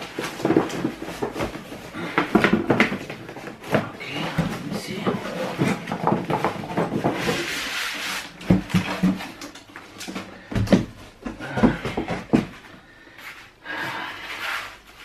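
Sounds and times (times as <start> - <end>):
knocks and thumps of packaging: 0.0 - 7.7, 8.3 - 12.8
cardboard scraping rustle: 0.0 - 9.4.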